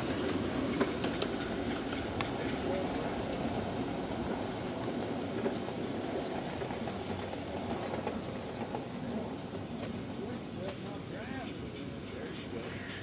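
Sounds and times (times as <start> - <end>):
miniature train wheels on rails: 0.0 - 13.0.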